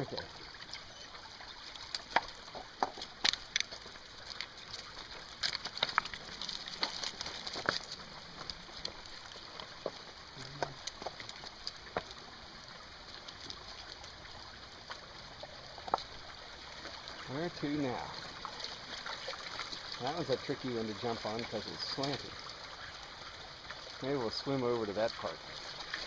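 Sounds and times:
creek water trickling: 0:00.0 - 0:26.0
stones shifting underfoot: 0:01.6 - 0:22.4.

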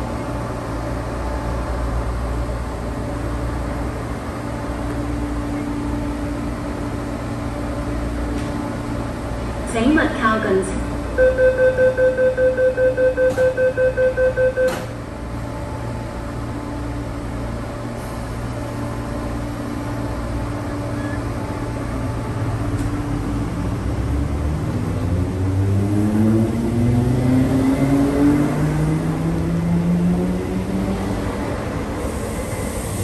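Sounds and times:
door-closing warning beeps: 0:11.2 - 0:15.0
train doors shutting with a knock: 0:13.2 - 0:13.6, 0:14.5 - 0:15.1.

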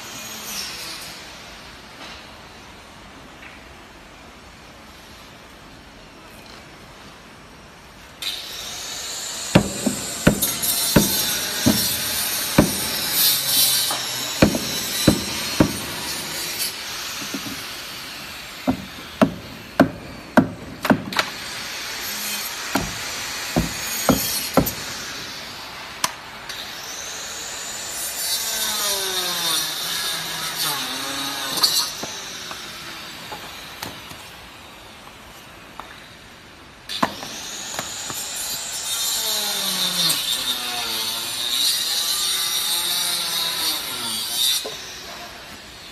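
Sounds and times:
hammer knocking on timber: 0:09.6 - 0:13.2, 0:14.4 - 0:16.2, 0:17.2 - 0:17.6, 0:18.7 - 0:21.3, 0:22.8 - 0:24.9.

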